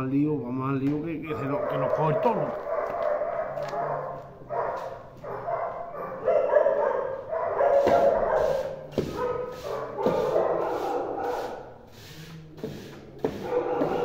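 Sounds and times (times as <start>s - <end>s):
dogs whining and yipping: 1.4s - 11.6s, 13.4s - 14.0s
scraper scraping concrete floor: 7.5s - 14.0s
sharp knocks: 7.8s - 8.2s, 8.9s - 9.3s.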